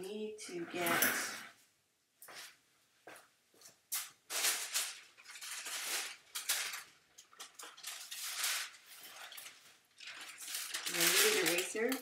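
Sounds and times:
paper rustling and sliding: 0:04.0 - 0:12.0.

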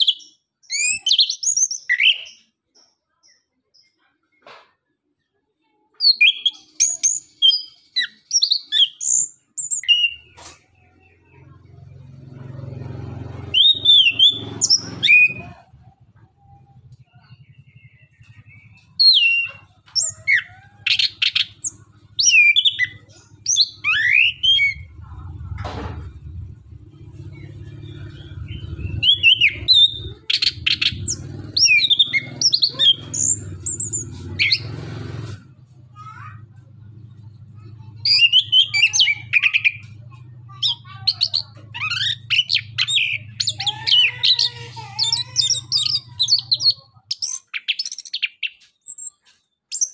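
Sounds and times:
thrush singing: 0:09.9 - 0:35.4, 0:37.5 - 0:47.0.

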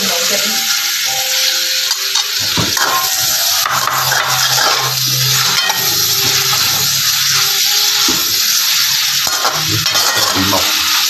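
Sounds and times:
meat sizzling in hot oil: 0:00.0 - 0:11.0
metal spatula scraping pan: 0:02.4 - 0:11.0.

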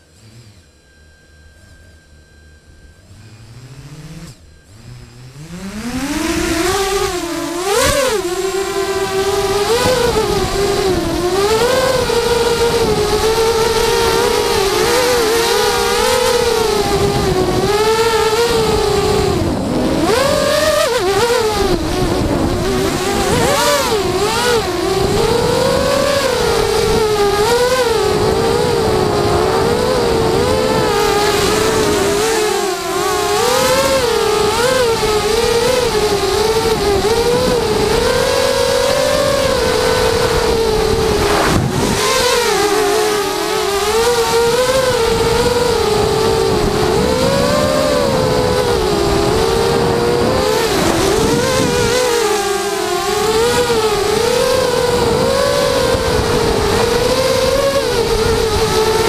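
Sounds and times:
quadcopter motors whining: 0:00.0 - 0:59.0.

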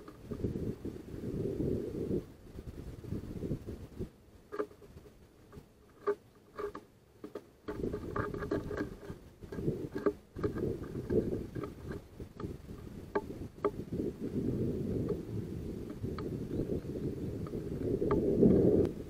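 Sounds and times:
low gusting rumble: 0:00.0 - 0:04.2, 0:07.7 - 0:19.0
sparrow pecking on wooden tray: 0:04.5 - 0:19.0.

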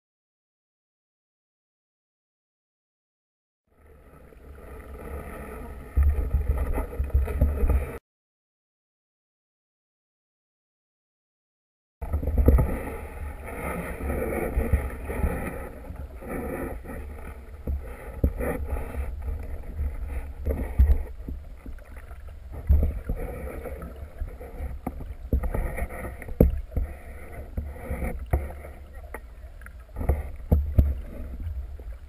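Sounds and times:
muffled water sloshing: 0:03.8 - 0:08.0, 0:12.0 - 0:32.0.

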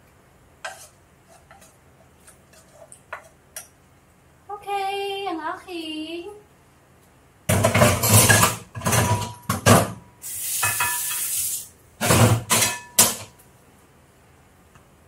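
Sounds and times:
dishes clattering in sink: 0:07.5 - 0:10.0, 0:10.6 - 0:11.4, 0:12.0 - 0:13.4
tap water running: 0:10.2 - 0:11.7.

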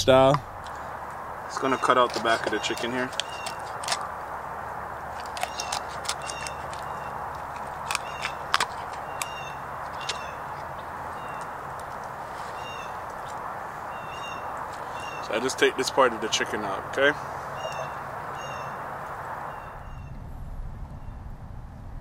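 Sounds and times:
bird calling in high notes: 0:01.5 - 0:03.7, 0:13.8 - 0:15.5, 0:17.1 - 0:18.8
knife cracking chicken bones: 0:05.2 - 0:10.2
steady rushing background: 0:18.0 - 0:22.0.

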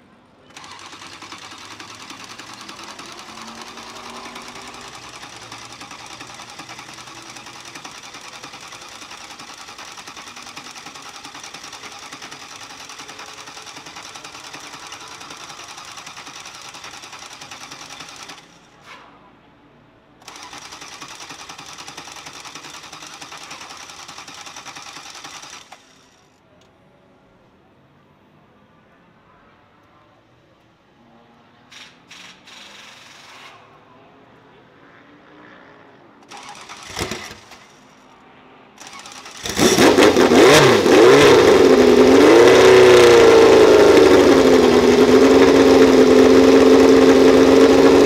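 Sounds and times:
race car engine idling: 0:39.3 - 0:48.0.

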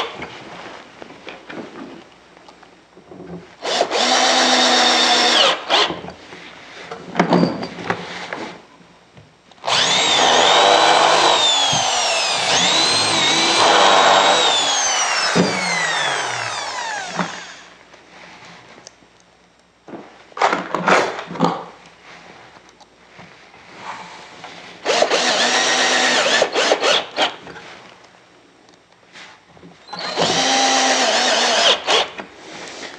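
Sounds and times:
drill driving screw into wood: 0:03.6 - 0:06.0, 0:09.6 - 0:17.7, 0:24.8 - 0:27.4, 0:29.9 - 0:32.3
electric drill boring into wood: 0:03.6 - 0:06.0, 0:09.6 - 0:17.7, 0:24.8 - 0:27.4, 0:29.9 - 0:32.2.

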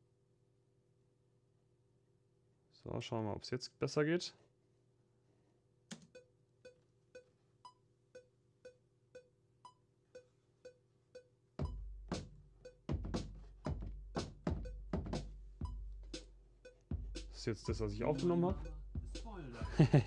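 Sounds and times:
booming kick drum: 0:11.6 - 0:16.2, 0:16.9 - 0:20.0.

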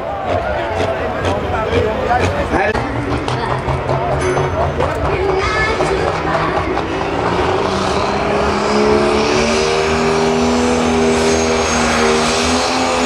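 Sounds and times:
diesel engine running hard: 0:00.0 - 0:13.0.

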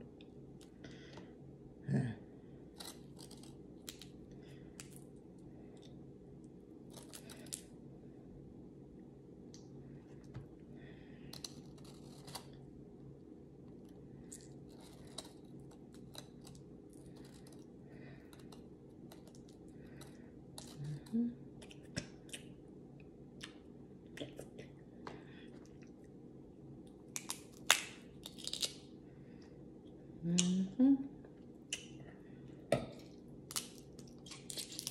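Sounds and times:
shellfish shells cracking: 0:27.1 - 0:28.9, 0:33.5 - 0:34.9.

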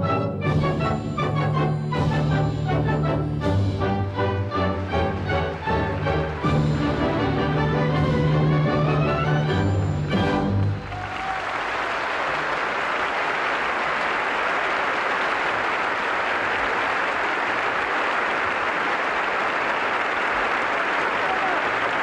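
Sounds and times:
audience applauding: 0:04.2 - 0:08.0, 0:10.0 - 0:22.0.

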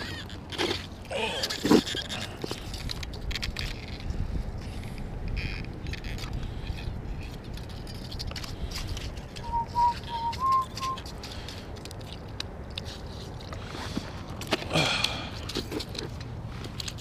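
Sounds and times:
short whistled notes: 0:09.4 - 0:11.0.

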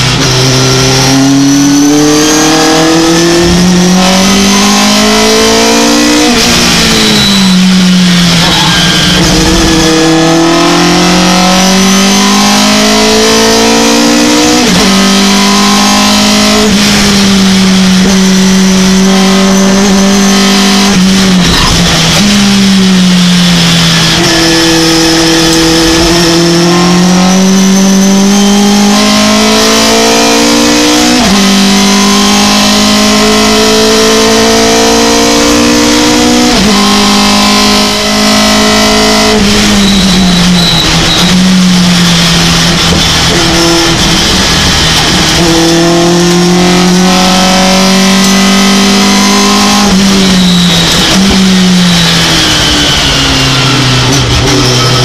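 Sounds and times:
truck engine accelerating hard: 0:00.0 - 0:55.0.

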